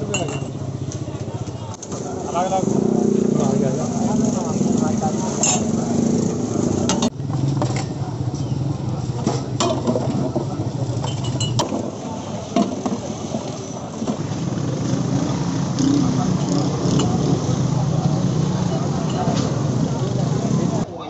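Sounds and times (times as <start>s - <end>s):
ladle clinking against pots: 0.0s - 0.6s, 11.0s - 11.8s
voices: 0.0s - 21.0s.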